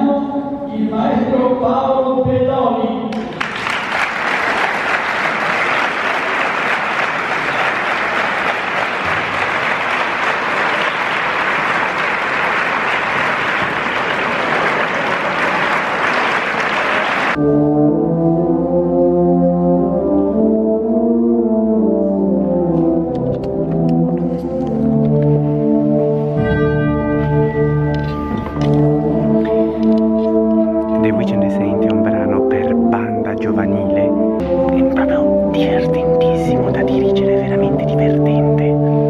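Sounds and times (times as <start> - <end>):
audience applauding: 3.1 - 17.4
concert band brass chords: 3.2 - 39.0.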